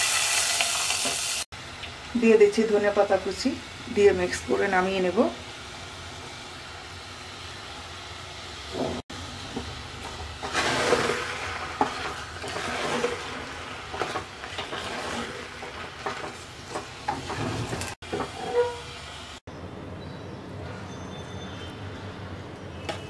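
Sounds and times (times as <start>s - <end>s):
wooden spatula scraping metal pot: 10.4s - 19.0s.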